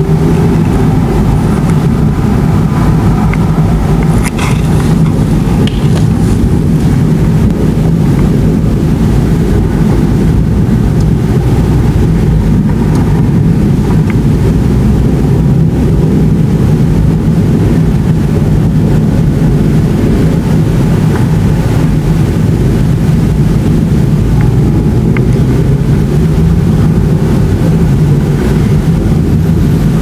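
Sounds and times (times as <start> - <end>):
distant thunder rumbling: 0.0 - 30.0.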